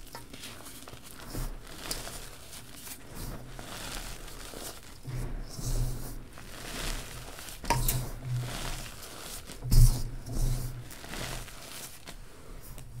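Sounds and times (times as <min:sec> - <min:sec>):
fingers crunching chalk powder: 0:06.4 - 0:12.2.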